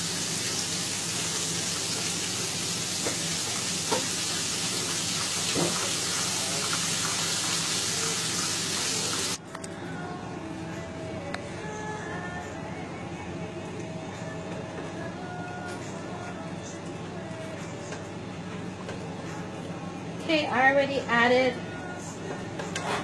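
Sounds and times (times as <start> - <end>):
gravy sizzling in skillet: 0.0 - 9.4.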